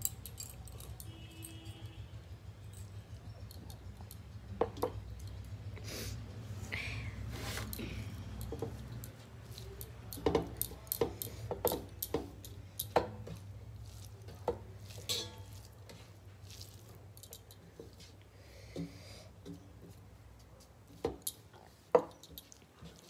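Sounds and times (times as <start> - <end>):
metal plates clinking: 15.0 - 15.6.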